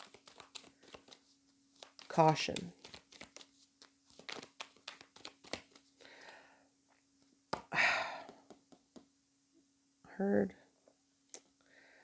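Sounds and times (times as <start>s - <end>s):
cards clicking and rustling: 0.0s - 6.0s.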